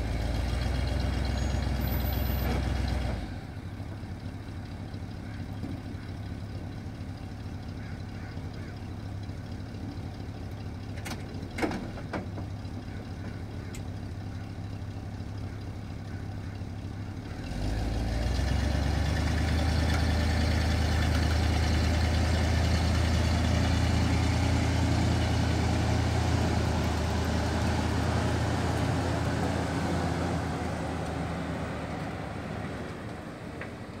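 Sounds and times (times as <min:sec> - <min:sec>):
pickup truck engine idling: 0:00.0 - 0:17.7.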